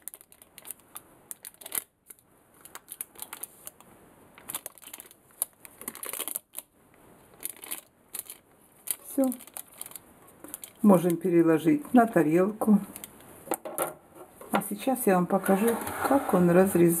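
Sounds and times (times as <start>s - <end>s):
parchment paper rustling: 0.0s - 6.6s, 7.3s - 13.2s.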